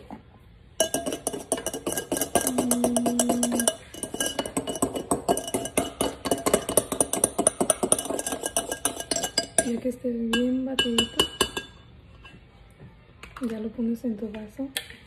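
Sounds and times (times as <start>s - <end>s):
whisk clinking against glass: 0.8s - 11.8s.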